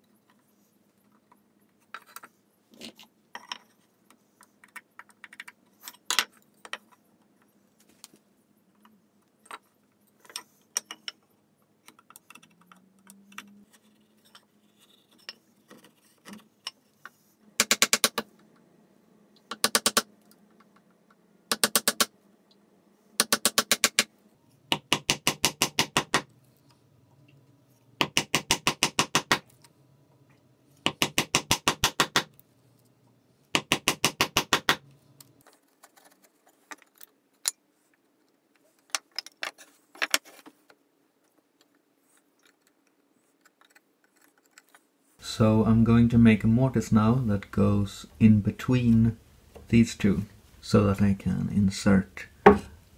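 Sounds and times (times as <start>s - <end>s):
tools knocking on bench: 52.4s - 52.8s.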